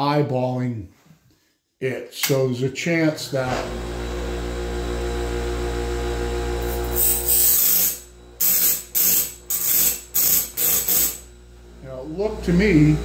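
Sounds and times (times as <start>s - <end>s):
grinding wheel motor hum: 3.3s - 13.0s
harsh grinding on blade: 6.6s - 11.3s.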